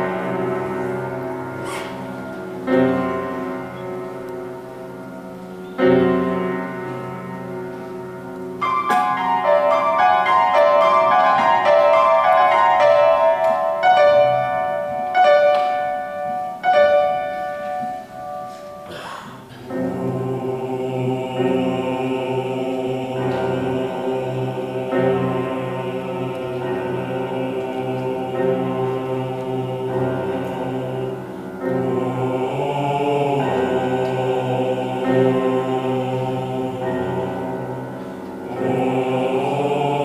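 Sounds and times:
grand piano playing: 0.0 - 40.0
male vocal ensemble singing: 18.9 - 40.0.

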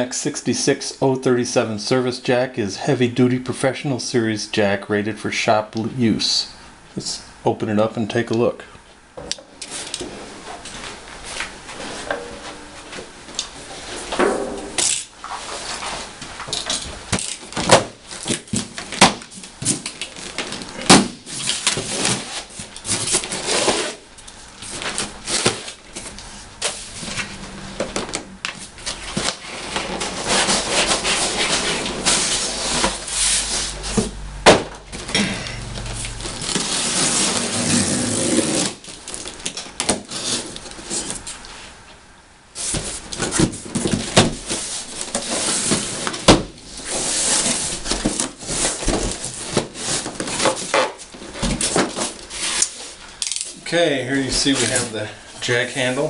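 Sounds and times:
cardboard flaps scraping: 9.7 - 35.2, 35.8 - 41.8, 42.6 - 53.0
box cutter slicing cardboard: 36.3 - 38.8.

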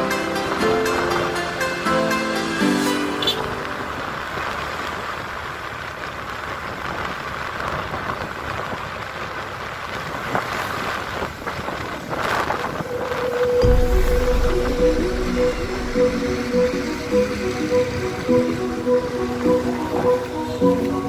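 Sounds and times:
wind and road noise: 0.0 - 21.0
wind buffeting microphone: 6.2 - 20.4.

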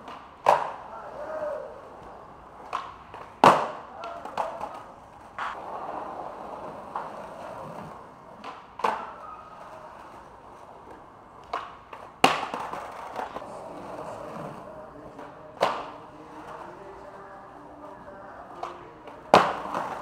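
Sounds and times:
skateboard clacking on ground: 0.0 - 20.0
skateboard rolling: 0.0 - 20.0.

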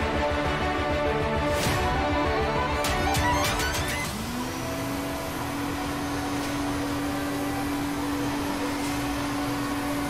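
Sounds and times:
small motor humming: 3.6 - 10.0.

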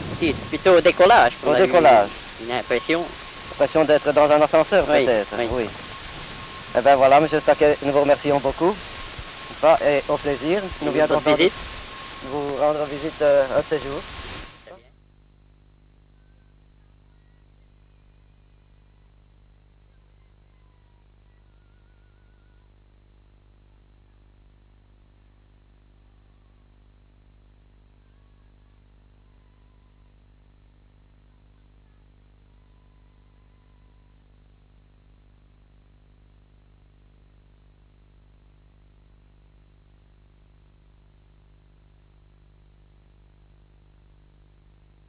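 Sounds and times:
faint low hum and hiss: 0.0 - 45.0.

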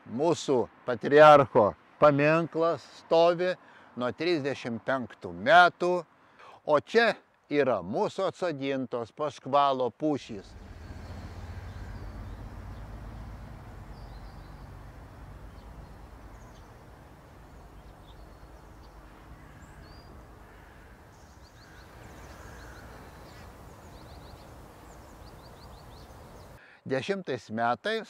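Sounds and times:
birds chirping: 10.2 - 26.6.

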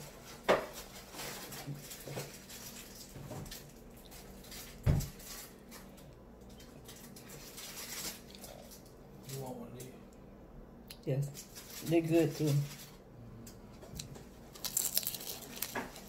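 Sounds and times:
person chewing crispy food: 1.8 - 9.0, 13.9 - 16.0.

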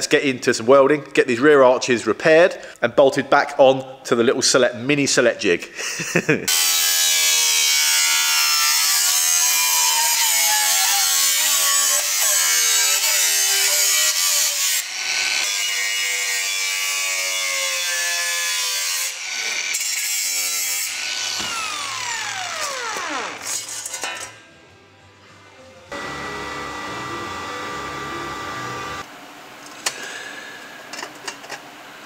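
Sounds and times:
angle grinder cutting steel: 6.5 - 24.1, 25.9 - 29.1
grinder disc spinning down: 21.4 - 23.6, 25.9 - 29.1.

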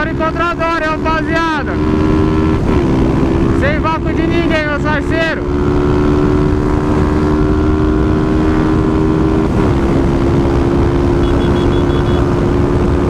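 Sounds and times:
motorcycle engine at high revs: 0.0 - 13.0
faint high beeps: 11.2 - 12.3.

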